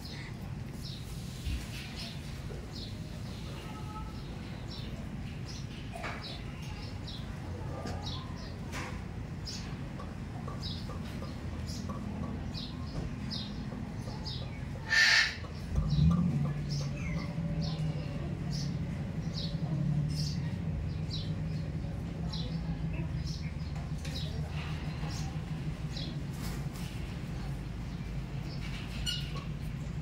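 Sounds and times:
small birds chirping: 0.0s - 30.0s
harsh bird call: 14.8s - 15.6s.

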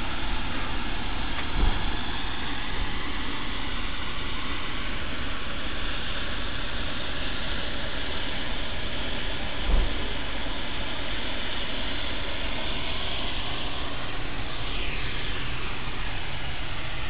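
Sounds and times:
steam locomotive hissing: 0.0s - 17.0s
short low thump: 1.5s - 1.9s, 9.7s - 10.1s.

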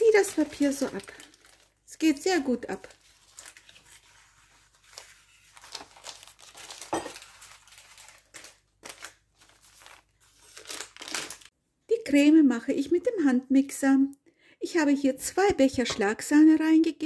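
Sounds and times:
baking paper rustling and crinkling: 0.0s - 11.5s.

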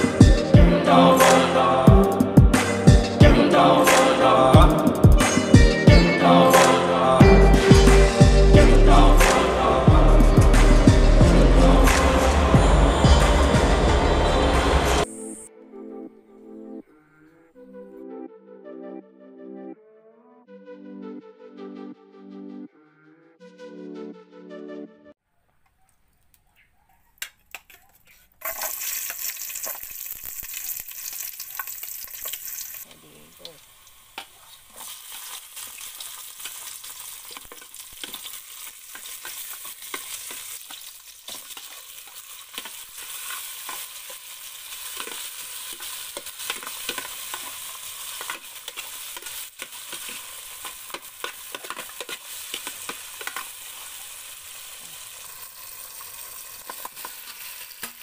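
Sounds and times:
food sizzling in hot oil: 28.4s - 58.0s.

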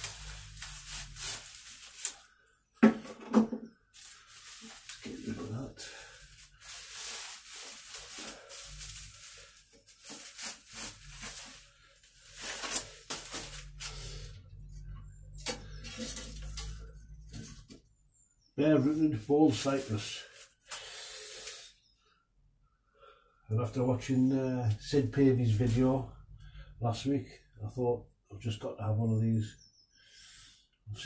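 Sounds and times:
bubble wrap crinkling: 0.0s - 2.4s, 3.9s - 14.3s.

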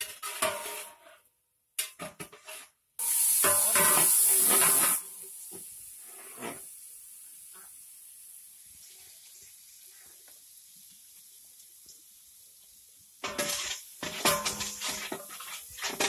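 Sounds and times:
metal ladle scraping pot: 0.0s - 1.1s, 13.2s - 16.0s
food frying in oil: 3.0s - 16.0s.

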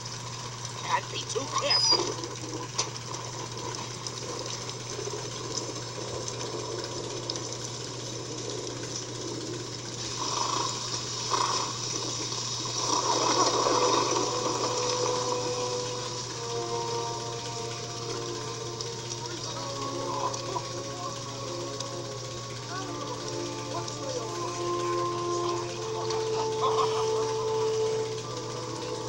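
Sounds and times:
constant low hum: 0.0s - 29.0s
steady rain: 0.0s - 29.0s.

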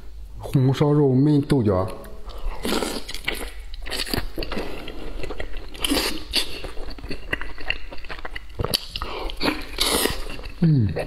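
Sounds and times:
person chewing meat: 2.0s - 11.0s
mouth clicks and smacks: 7.1s - 11.0s.

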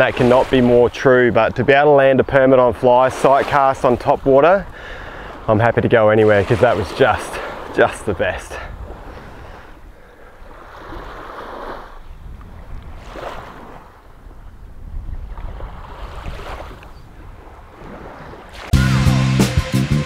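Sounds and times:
small waves lapping on sand: 0.0s - 18.8s
wind rumbling on microphone: 4.0s - 18.7s.

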